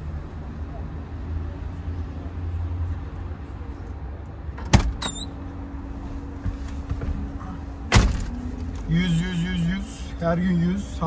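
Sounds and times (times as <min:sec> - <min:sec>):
car door slamming shut: 0:04.6 - 0:05.1, 0:07.9 - 0:08.4
car door click and squeak: 0:04.7 - 0:05.4.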